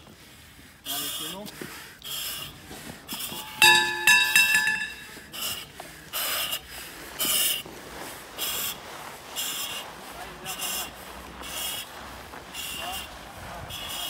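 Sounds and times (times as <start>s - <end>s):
breathing through a mask: 0.0s - 3.5s
sharp metallic clinks: 3.2s - 5.1s.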